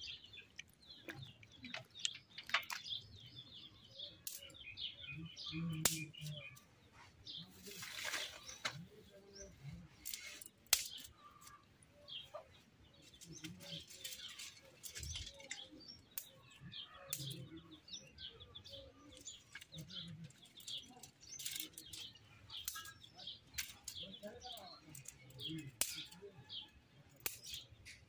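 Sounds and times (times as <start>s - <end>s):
small birds chirping: 0.0s - 28.0s
dry twigs rustling and snapping: 0.4s - 3.2s, 4.2s - 4.6s, 5.5s - 6.7s, 7.5s - 8.9s, 10.0s - 11.6s, 13.1s - 17.6s, 19.0s - 28.0s.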